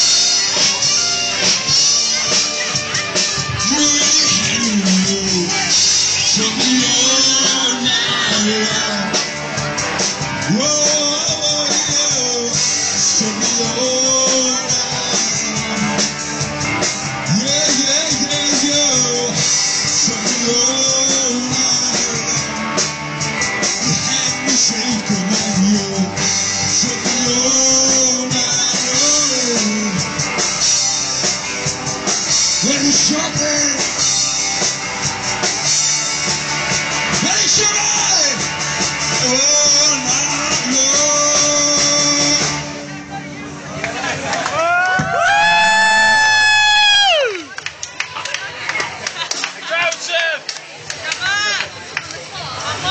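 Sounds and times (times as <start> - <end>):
drum kit with cymbals: 0.0 - 42.9
electric guitar: 0.0 - 52.9
live rock band: 0.0 - 52.9
person singing: 3.4 - 9.4, 10.4 - 16.2, 17.2 - 22.6, 23.6 - 30.2, 32.6 - 34.0, 39.1 - 42.9.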